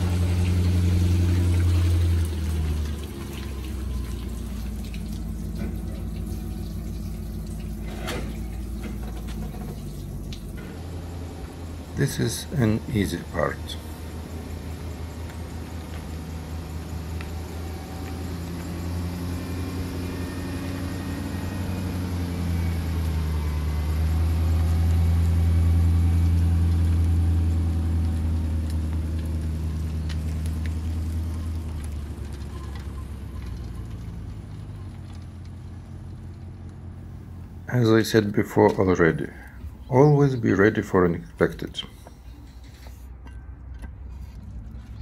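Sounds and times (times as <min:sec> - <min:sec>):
car engine humming: 0:00.0 - 0:45.0.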